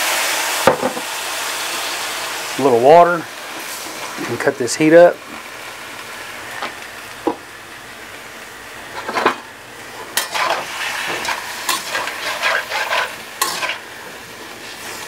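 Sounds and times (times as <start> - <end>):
potatoes sizzling in a wok: 0.0 - 15.0
spatula scraping a wok: 10.0 - 15.0.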